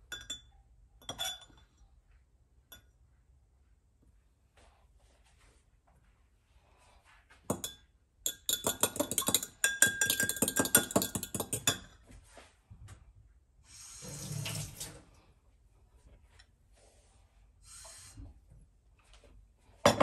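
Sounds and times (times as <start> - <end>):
fork beating eggs in glass cup: 7.5 - 12.0.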